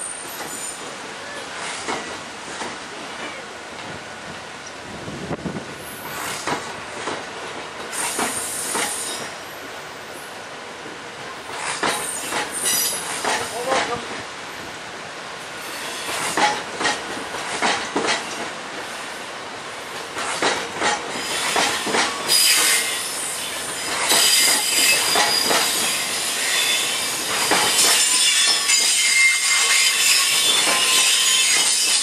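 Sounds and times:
train wheels clacking over rail joints: 0.0s - 4.0s, 6.0s - 9.8s, 10.8s - 14.3s, 15.6s - 19.0s, 19.9s - 32.0s
high wheel squeal: 21.2s - 32.0s.

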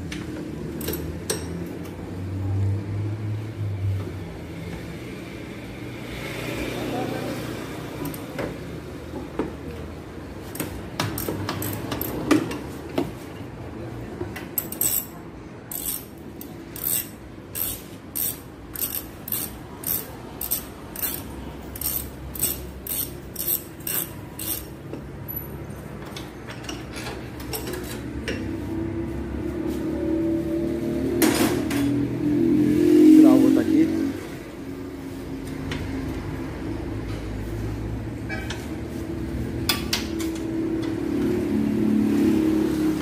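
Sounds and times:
wrench clicking on metal bolts: 0.8s - 1.6s, 10.5s - 12.5s, 14.6s - 24.9s.

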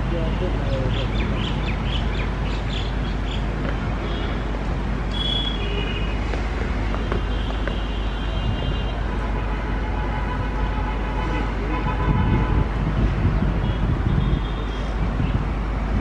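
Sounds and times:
road traffic noise: 0.0s - 16.0s
birds chirping: 0.4s - 4.4s.

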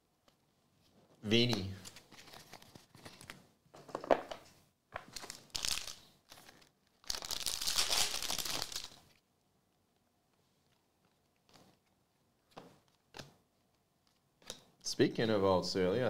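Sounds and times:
foil pack crinkling: 5.1s - 9.2s.

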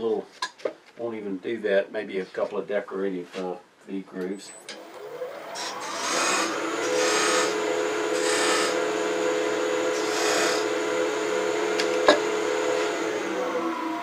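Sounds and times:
wood lathe motor whine: 4.7s - 14.0s
turning tool scraping wood: 5.5s - 13.7s.

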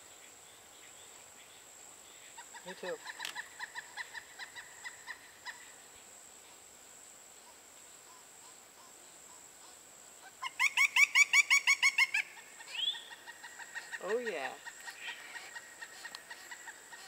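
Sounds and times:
insect drone: 0.0s - 17.0s
woodpecker chick calling: 2.3s - 5.8s, 8.1s - 17.0s.

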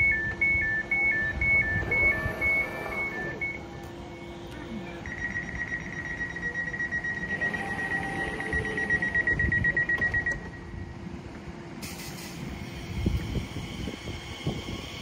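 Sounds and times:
train door warning beeps: 0.0s - 10.9s
hiss: 11.8s - 15.0s.

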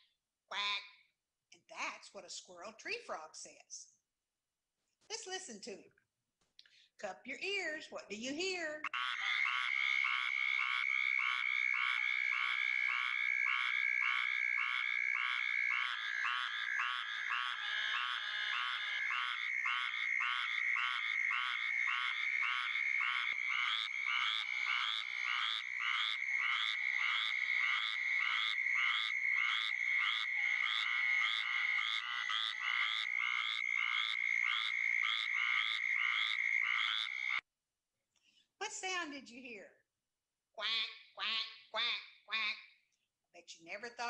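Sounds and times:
tree frog quacking call: 8.8s - 37.4s, 40.6s - 42.8s.

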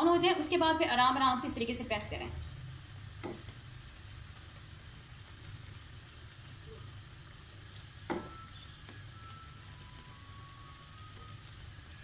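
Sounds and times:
pakoras sizzling in hot oil: 0.0s - 12.0s
knock: 8.1s - 8.4s.

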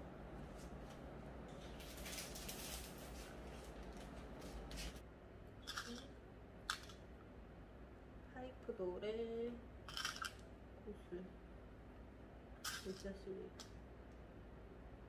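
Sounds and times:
small metal parts clicking: 9.9s - 10.4s.

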